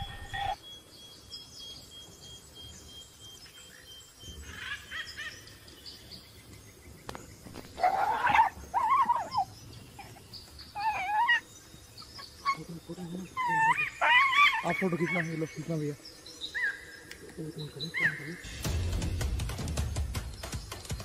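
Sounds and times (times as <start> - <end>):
fox yelping: 7.8 - 11.5, 13.3 - 15.3.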